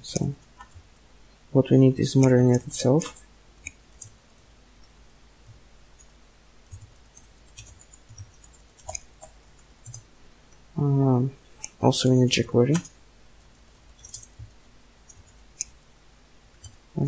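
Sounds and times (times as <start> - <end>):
computer keyboard keys clicking: 6.7 - 10.0, 12.7 - 12.9, 13.7 - 15.7, 16.5 - 16.8.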